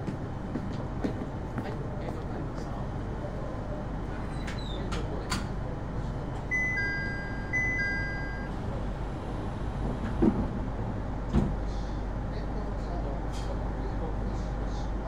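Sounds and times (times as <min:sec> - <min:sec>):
steady low hum: 0:00.0 - 0:15.0
electronic two-tone chime: 0:06.5 - 0:08.5
short thump: 0:11.3 - 0:11.6.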